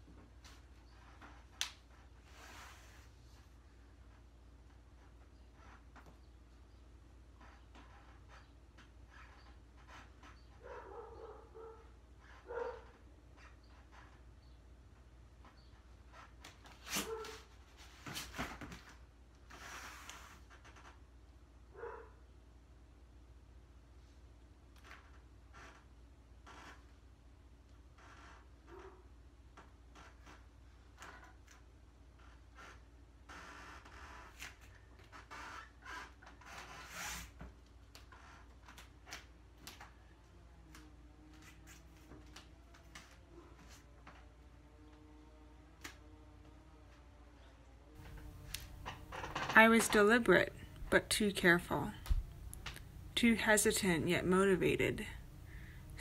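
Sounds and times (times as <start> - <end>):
dog barking: 10.6 - 12.9, 17.0 - 17.4, 21.8 - 22.2.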